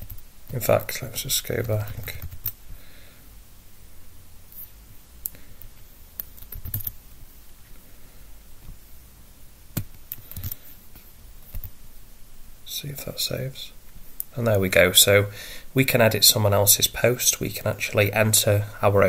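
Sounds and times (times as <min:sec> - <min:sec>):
computer keyboard clicks: 0:06.2 - 0:07.0, 0:09.8 - 0:10.6.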